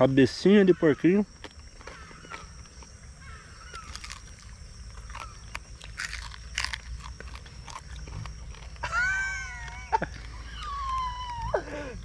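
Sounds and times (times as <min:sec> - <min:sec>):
chewing crisp fried fish: 0:03.7 - 0:11.4.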